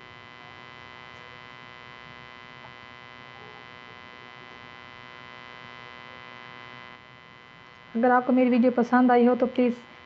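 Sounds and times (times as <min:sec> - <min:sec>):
steady electrical hum: 0:00.0 - 0:10.0.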